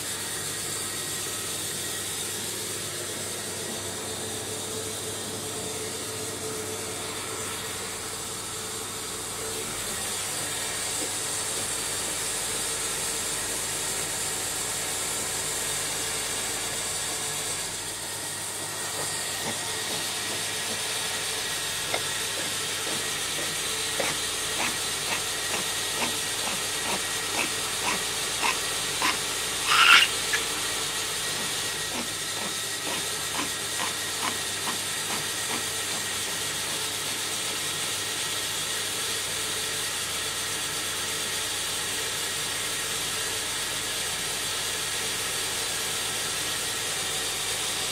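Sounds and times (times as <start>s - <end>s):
brief high squeak: 29.6s - 30.4s.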